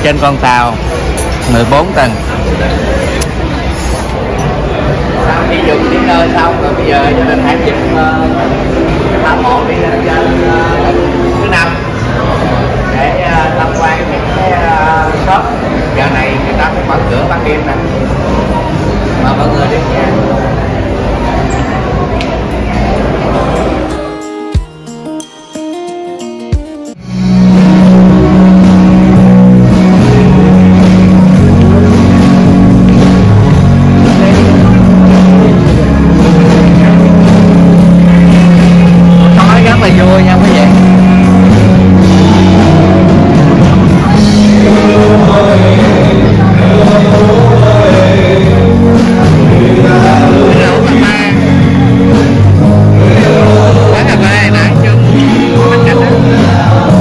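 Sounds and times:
loud music with drum beat: 0:24.1 - 0:25.3, 0:25.9 - 0:57.0
held low bass note: 0:27.0 - 0:57.0.

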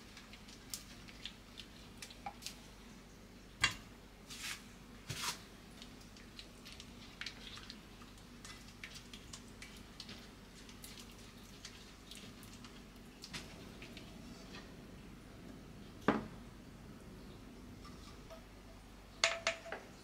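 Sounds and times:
spatula stirring sticky sauce: 0:05.2 - 0:14.6.

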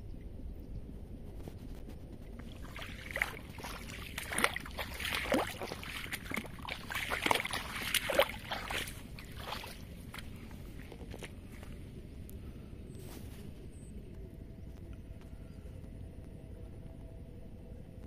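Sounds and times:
water splashes: 0:02.3 - 0:11.8
sloshing through wet mud: 0:02.3 - 0:11.9.

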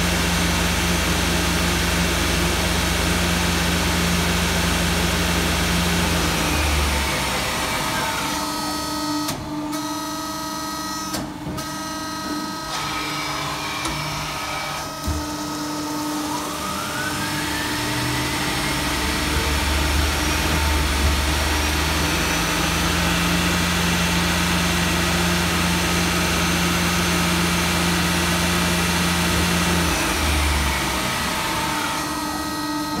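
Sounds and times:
lathe whine: 0:00.0 - 0:09.2, 0:12.1 - 0:33.0
lathe machine hum: 0:00.0 - 0:10.0, 0:11.4 - 0:33.0
deep drone: 0:16.0 - 0:33.0.

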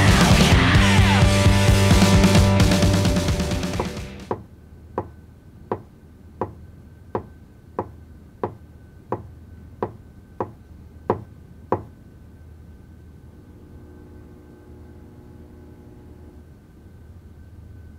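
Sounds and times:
music: 0:00.0 - 0:04.3.

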